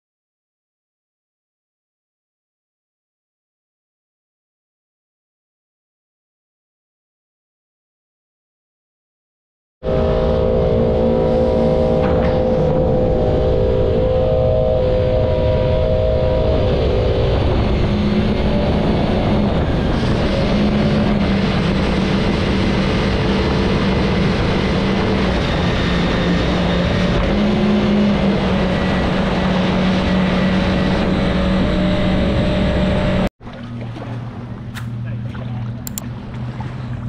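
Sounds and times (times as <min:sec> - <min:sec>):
wind noise: 0:09.8 - 0:33.3
engine running at speed: 0:09.8 - 0:37.0
rushing water: 0:33.4 - 0:37.0.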